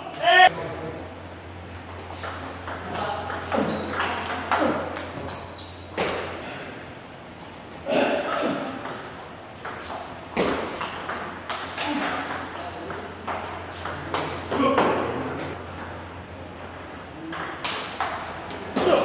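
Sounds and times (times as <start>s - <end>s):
table tennis ball rally: 2.1s - 6.4s, 8.7s - 19.0s.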